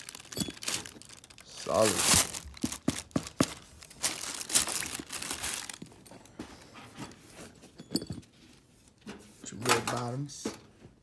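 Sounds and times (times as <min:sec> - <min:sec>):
tissue paper rustling: 0:00.0 - 0:06.0.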